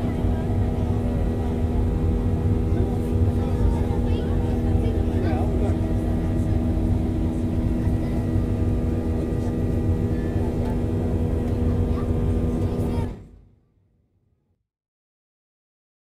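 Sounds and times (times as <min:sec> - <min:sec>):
jet engines roaring in cabin: 0:00.0 - 0:13.5.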